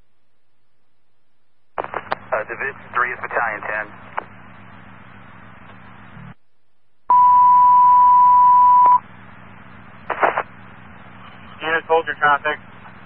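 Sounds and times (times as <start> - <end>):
loud steady radio beep: 7.1 - 9.0, 10.1 - 10.6.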